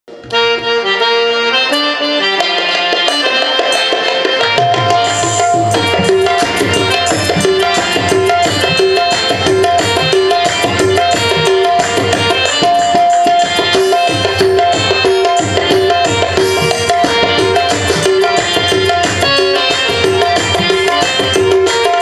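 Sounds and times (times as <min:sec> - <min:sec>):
harmonium melody: 0:00.1 - 0:22.0
tabla rhythm: 0:00.1 - 0:22.0.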